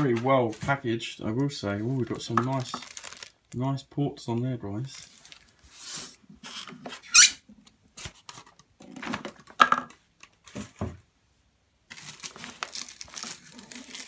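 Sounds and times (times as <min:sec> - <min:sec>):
plastic wrap rustling: 0:01.6 - 0:03.6, 0:04.8 - 0:06.6, 0:11.9 - 0:14.0
case squeaking against foam: 0:07.0 - 0:07.4.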